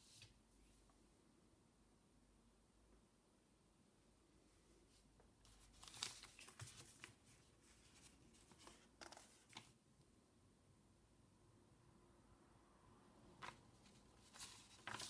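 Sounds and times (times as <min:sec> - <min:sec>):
paper rustling and crinkling: 0:05.5 - 0:09.8, 0:13.4 - 0:15.0.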